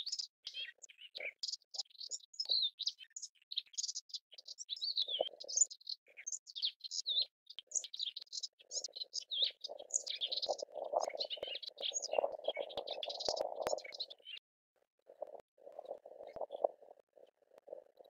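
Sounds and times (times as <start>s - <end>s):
warbler singing: 0.0s - 14.4s.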